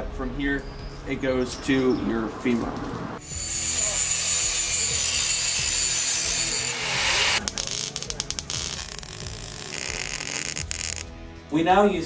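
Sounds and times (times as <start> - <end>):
welding hiss and crackle: 3.2 - 11.1.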